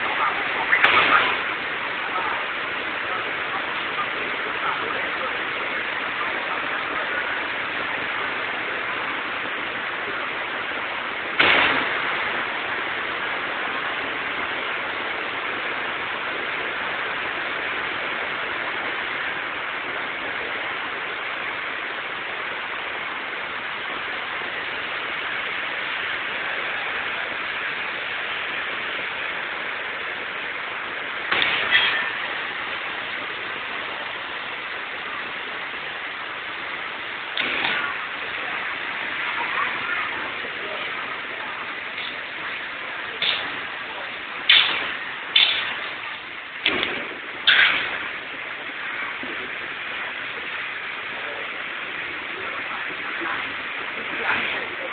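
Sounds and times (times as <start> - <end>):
heavy rain falling: 0.0 - 54.9
sharp bangs: 0.6 - 2.0, 11.4 - 12.6, 31.3 - 33.1, 37.3 - 38.4, 44.4 - 46.0, 46.6 - 48.3.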